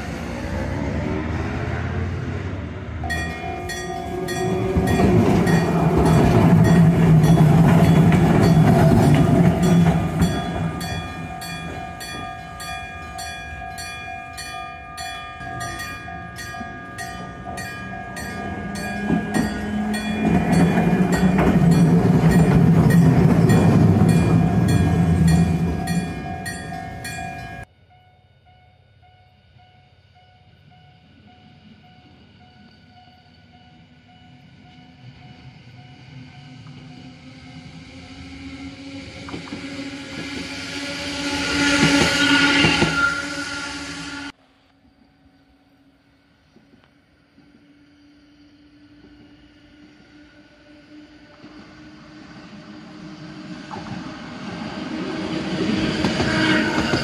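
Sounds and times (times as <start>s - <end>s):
tram rumbling on rails: 0.0s - 27.7s, 28.5s - 57.0s
level crossing warning bell ringing: 3.0s - 27.7s.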